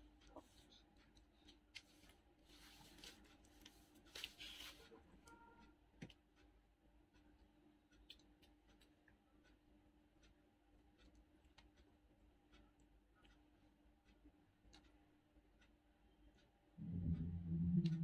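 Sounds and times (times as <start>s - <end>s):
crinkly rustles: 0.2s - 5.4s.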